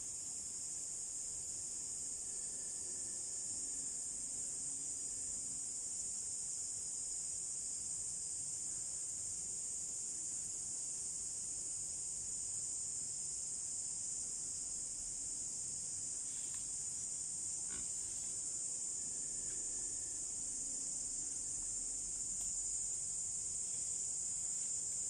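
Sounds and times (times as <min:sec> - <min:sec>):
high-pitched insect chorus: 0:00.0 - 0:25.0
faint ticks: 0:16.3 - 0:16.8, 0:21.2 - 0:23.0.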